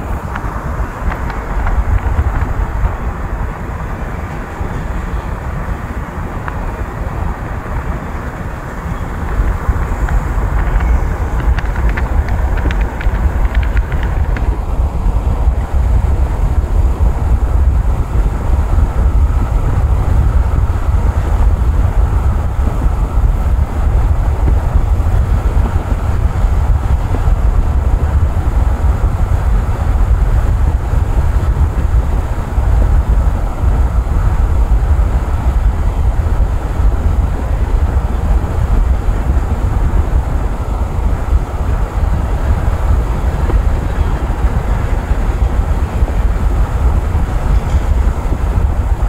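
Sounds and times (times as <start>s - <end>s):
wind buffeting microphone: 0.0s - 49.0s.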